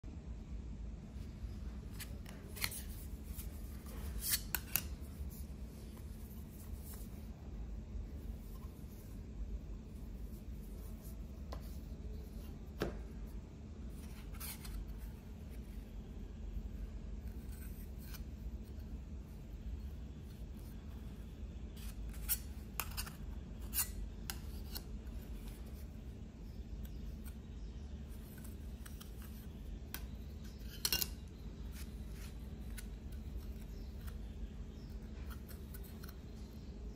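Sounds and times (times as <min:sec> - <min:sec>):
low steady hum: 0:00.0 - 0:36.9
metal cards clicking and scraping: 0:01.9 - 0:07.2, 0:14.0 - 0:15.2, 0:21.8 - 0:36.7.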